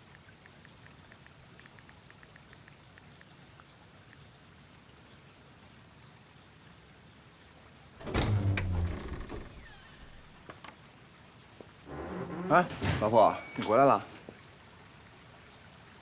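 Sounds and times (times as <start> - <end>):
small ticks and chirps: 0.0 - 5.3
faint outdoor ambience: 0.0 - 16.0.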